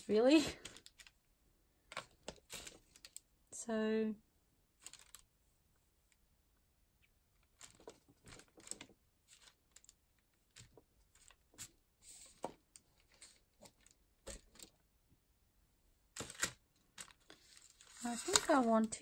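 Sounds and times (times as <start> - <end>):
paper rustling: 4.8 - 5.2, 7.4 - 14.7, 16.2 - 19.0.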